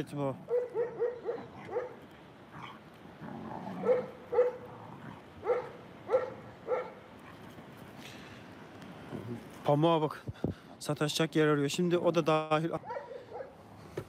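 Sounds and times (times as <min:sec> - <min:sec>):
dogs play-fighting: 0:00.5 - 0:08.0.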